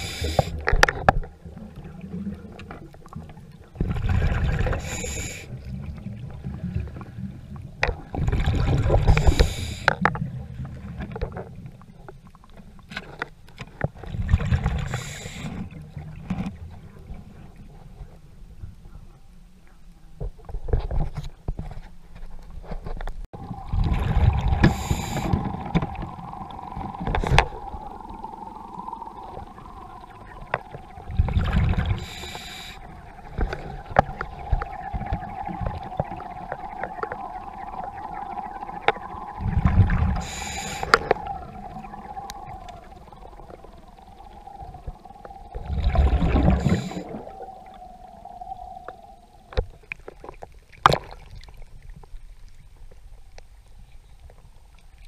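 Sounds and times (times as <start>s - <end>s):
exhaled bubbles rushing underwater: 0.0s - 11.2s, 23.4s - 52.3s
steady underwater hum: 0.0s - 20.2s, 23.3s - 55.0s.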